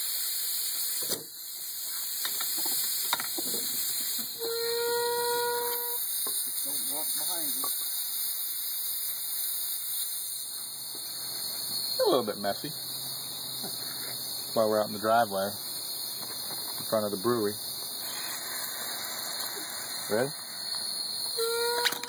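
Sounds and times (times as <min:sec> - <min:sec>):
valve and capper clicks: 0:00.0 - 0:11.8, 0:17.8 - 0:22.0
hiss of gas and foaming beer: 0:00.0 - 0:22.0
horn-like tone: 0:04.4 - 0:06.0, 0:21.4 - 0:22.0.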